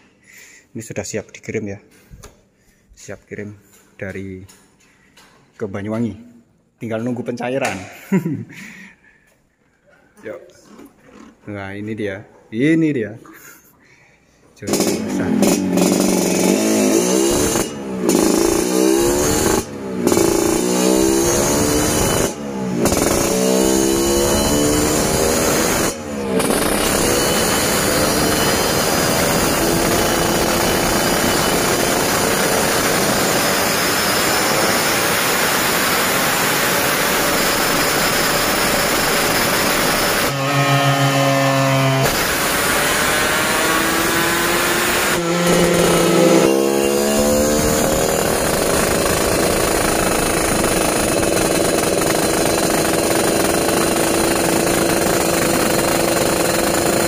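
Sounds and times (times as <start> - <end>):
two-stroke engine at full throttle: 14.7 - 57.0.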